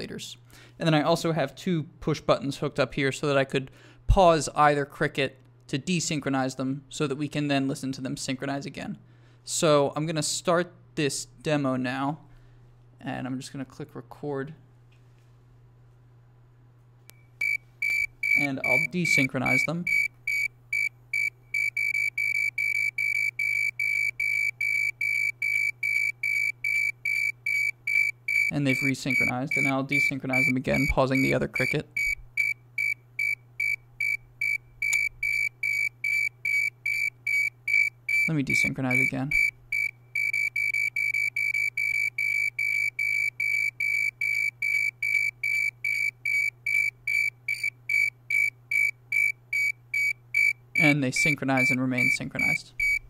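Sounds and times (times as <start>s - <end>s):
synthesized cricket chirps: 17.3s - 38.3s, 38.9s - 53.0s.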